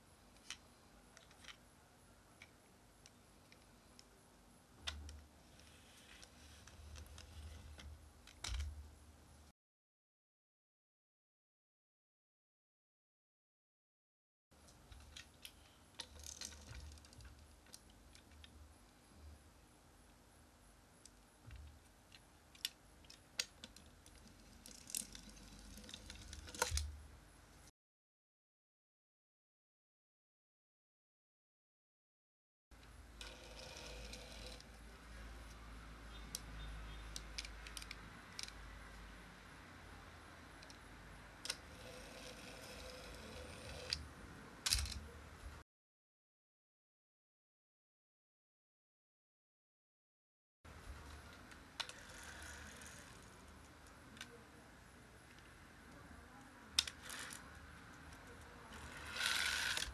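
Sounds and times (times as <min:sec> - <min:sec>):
plastic toy clicks and knocks: 0:07.0 - 0:08.8, 0:22.5 - 0:26.9, 0:37.1 - 0:38.6, 0:44.6 - 0:45.0, 0:56.8 - 0:57.5, 0:58.7 - 0:59.9
toy car clicks and knocks: 0:21.5 - 0:26.9, 0:33.2 - 0:34.7, 0:36.3 - 0:38.6, 0:41.4 - 0:44.0, 0:44.6 - 0:45.1, 0:51.3 - 0:54.4, 0:56.8 - 0:59.9.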